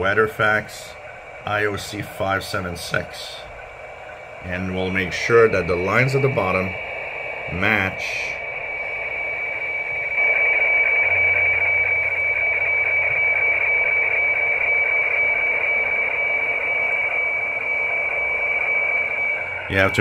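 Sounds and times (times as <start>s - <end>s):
shortwave hiss: 0.0s - 13.9s
steady high radio tone: 0.0s - 20.0s.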